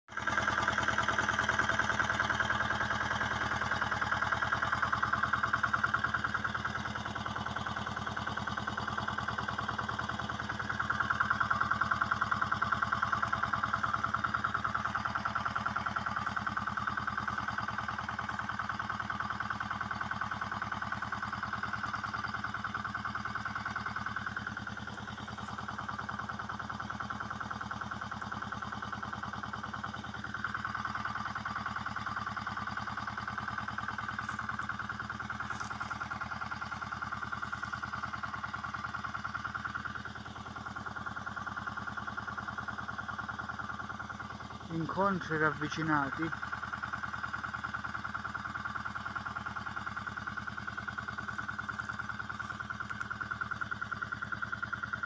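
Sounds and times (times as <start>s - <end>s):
steady mechanical drone: 20.0s - 55.0s.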